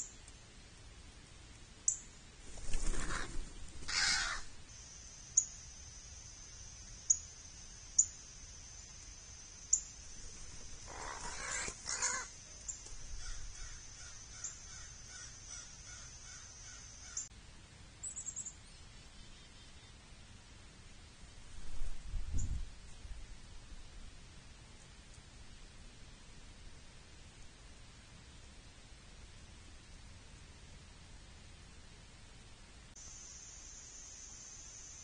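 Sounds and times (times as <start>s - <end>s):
crows cawing: 3.0s - 4.6s, 10.8s - 12.3s, 13.2s - 17.3s.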